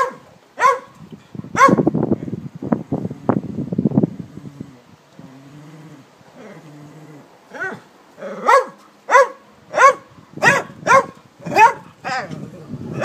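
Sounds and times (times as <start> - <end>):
dog barking sharply: 0.0 - 1.0, 1.6 - 1.9, 8.4 - 11.9
dog growling low: 4.1 - 8.5, 12.0 - 13.0.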